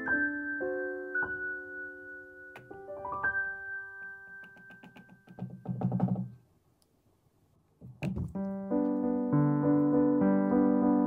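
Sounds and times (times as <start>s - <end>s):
piano background music: 0.0s - 5.6s, 8.3s - 11.0s.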